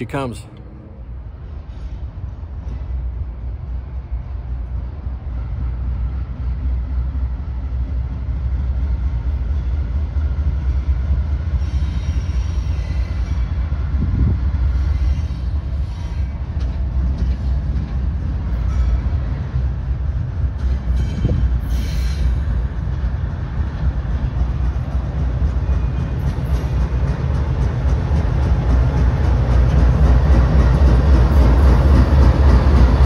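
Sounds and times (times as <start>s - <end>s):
diesel locomotive rumbling: 0.0s - 33.0s
high squeal from train wheels: 1.5s - 3.1s, 9.3s - 17.8s, 18.4s - 19.4s, 20.5s - 22.9s, 25.5s - 27.2s.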